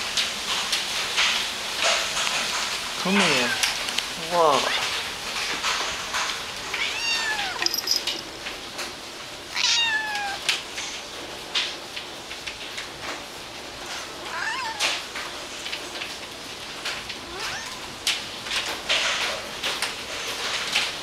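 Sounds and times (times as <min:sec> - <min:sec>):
rain hissing: 0:00.0 - 0:21.0
cat meowing: 0:06.7 - 0:07.6, 0:09.5 - 0:10.6, 0:14.3 - 0:15.1, 0:17.2 - 0:18.0.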